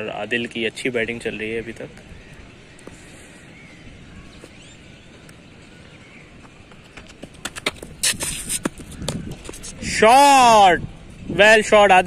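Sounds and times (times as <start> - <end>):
running footsteps: 5.8 - 9.8
cricket ball crack: 7.0 - 9.8.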